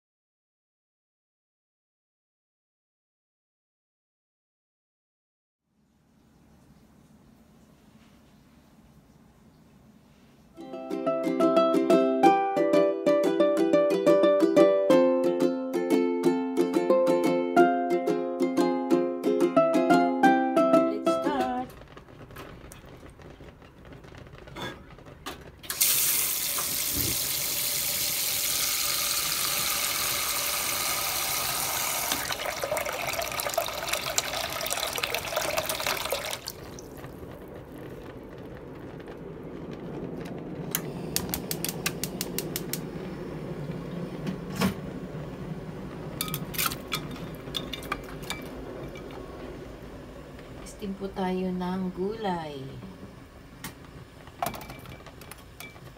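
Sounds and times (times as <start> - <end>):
tap water running into metal pot: 25.7 - 36.9.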